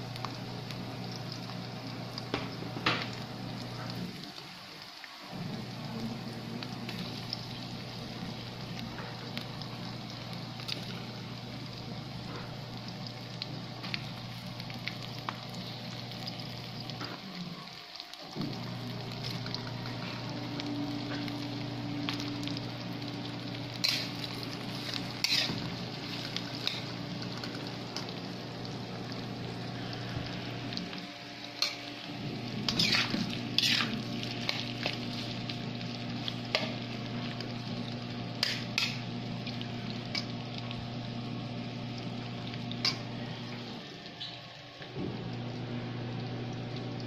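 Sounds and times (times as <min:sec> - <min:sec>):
food sizzling in oil: 0:00.0 - 0:47.0
steady low hum: 0:18.4 - 0:44.0
spatula scraping a wok: 0:23.8 - 0:26.9, 0:32.6 - 0:34.7, 0:38.4 - 0:39.0.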